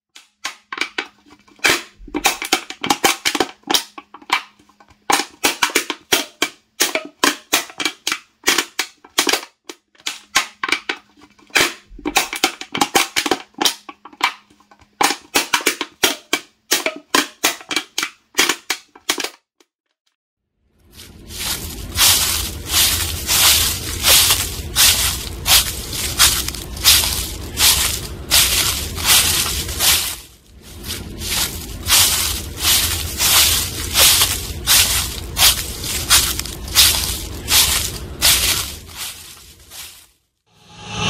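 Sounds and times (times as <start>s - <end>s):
can being crumpled: 21.0s - 40.1s.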